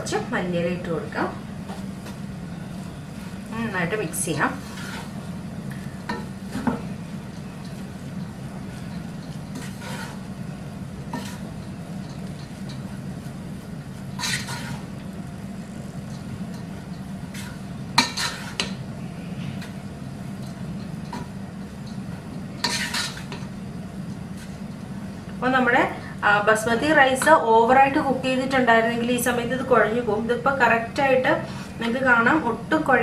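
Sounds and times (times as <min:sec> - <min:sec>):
steady low hum: 0:00.0 - 0:33.0
spatula scraping pot: 0:04.1 - 0:05.2, 0:08.7 - 0:10.3, 0:11.1 - 0:11.6, 0:14.1 - 0:14.9, 0:17.3 - 0:18.8, 0:22.6 - 0:23.4
spatula stirring rice: 0:04.4 - 0:15.1, 0:15.9 - 0:18.8, 0:19.5 - 0:24.8.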